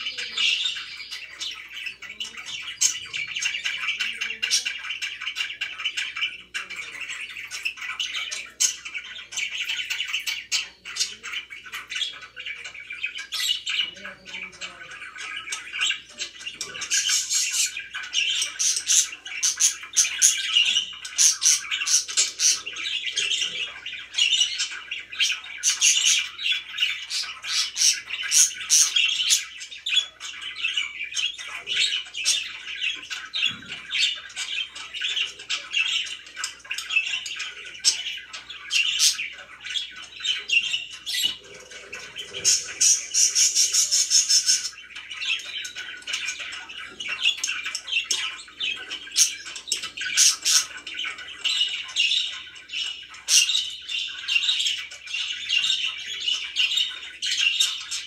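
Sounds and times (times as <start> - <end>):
budgerigars chirping and squawking: 0.0 - 58.0.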